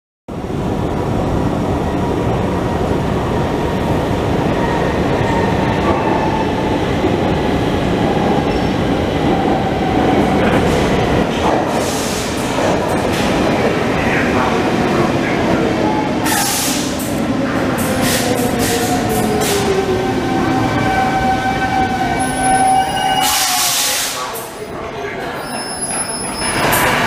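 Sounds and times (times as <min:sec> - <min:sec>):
metro train rumbling: 0:00.3 - 0:27.0
train brakes hissing: 0:11.7 - 0:12.4, 0:16.2 - 0:17.1, 0:22.4 - 0:24.4.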